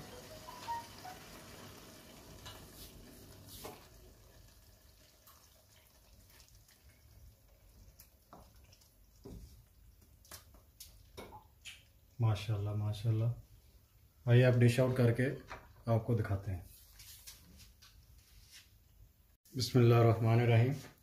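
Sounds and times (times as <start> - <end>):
curry sizzling and bubbling in pot: 0.0 - 14.2.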